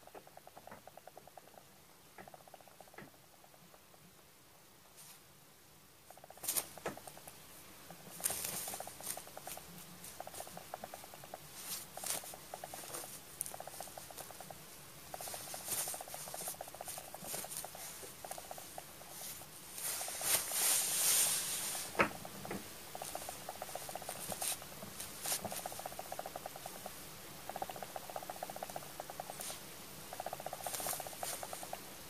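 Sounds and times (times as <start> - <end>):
cat purring: 0.0 - 4.1, 6.0 - 32.0.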